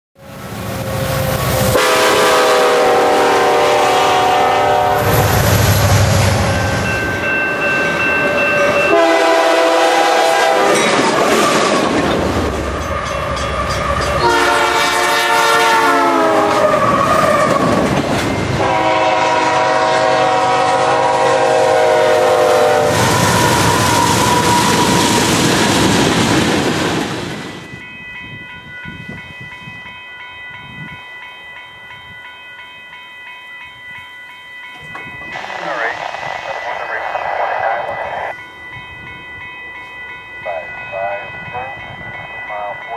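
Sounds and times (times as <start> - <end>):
freight train rumble: 0.2 - 42.9
locomotive air horn blasts: 0.9 - 5.2, 8.9 - 10.9, 14.2 - 17.5, 18.6 - 25.0.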